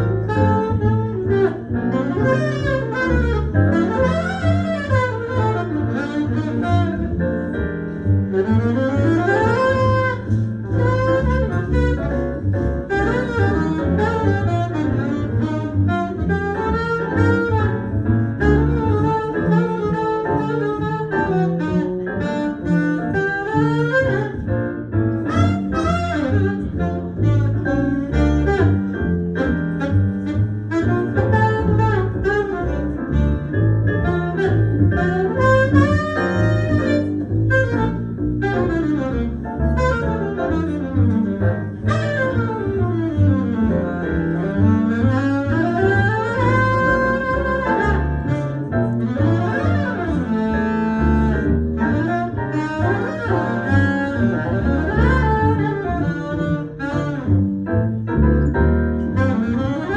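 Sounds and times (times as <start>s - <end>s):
double bass: 0.0s - 59.9s
saxophone melody: 0.0s - 59.9s.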